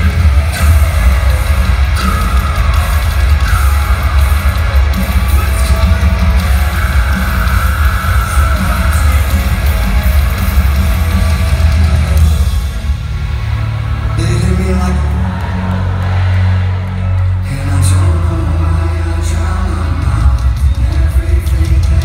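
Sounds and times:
booming bass and drums: 0:00.0 - 0:16.7
heavy distorted guitars: 0:00.0 - 0:22.0
live metal band: 0:00.0 - 0:22.0.

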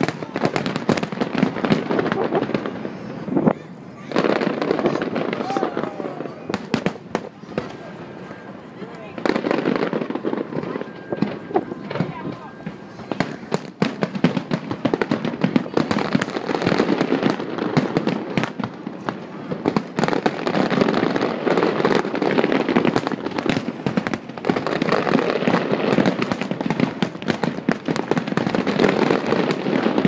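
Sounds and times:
fireworks booming and cracking: 0:00.0 - 0:30.0
fireworks crackle: 0:00.0 - 0:30.0.

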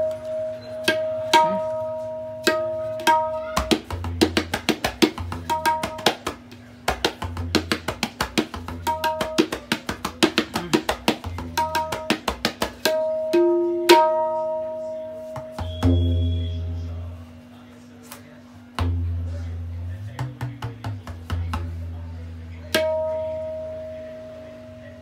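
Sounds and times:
tabla finger strokes: 0:15.1 - 0:16.6
tabla bass strokes: 0:15.2 - 0:17.3.

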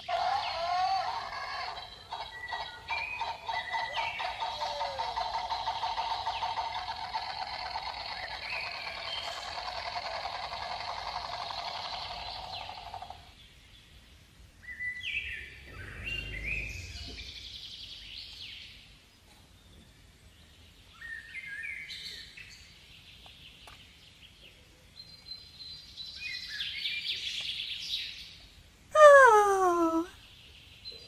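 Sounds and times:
birds chirping: 0:00.0 - 0:18.9, 0:29.0 - 0:31.0
brief low rumble: 0:15.6 - 0:17.4.

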